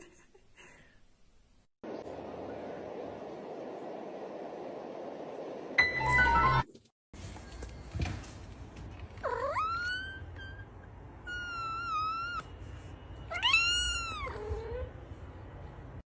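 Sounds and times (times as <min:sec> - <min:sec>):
cat meowing: 0:09.2 - 0:12.5, 0:13.3 - 0:14.9.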